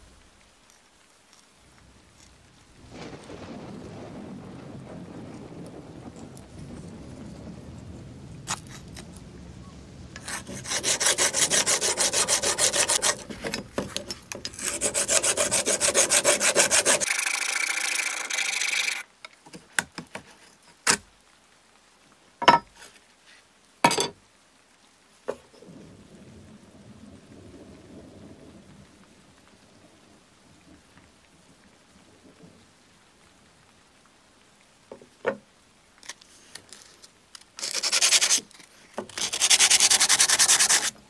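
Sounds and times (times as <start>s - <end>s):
scraping hiss: 10.2s - 17.1s, 36.0s - 41.0s
hand tool rasping: 10.2s - 19.0s, 39.1s - 40.9s.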